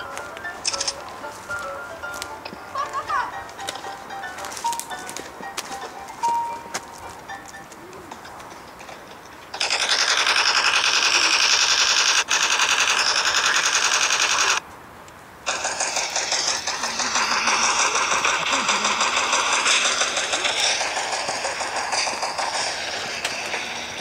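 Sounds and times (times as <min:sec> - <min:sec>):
automatic gunfire: 0:09.6 - 0:14.6.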